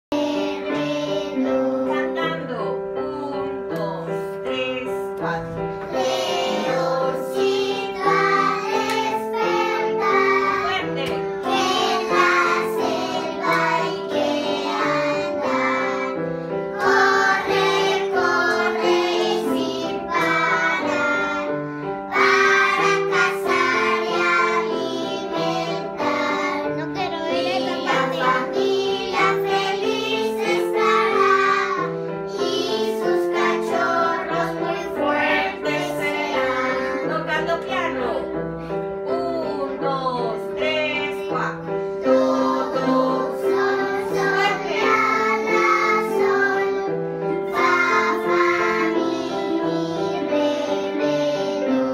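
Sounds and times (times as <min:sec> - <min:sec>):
children singing: 0:05.2 - 0:10.7, 0:11.4 - 0:37.1, 0:42.0 - 0:51.9.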